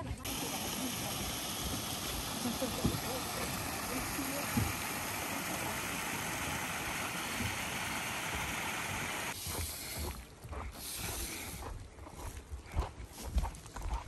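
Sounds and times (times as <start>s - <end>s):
footsteps on a wooden boardwalk: 0.0s - 0.4s, 9.3s - 14.0s
stream splashing over rocks: 0.0s - 9.4s.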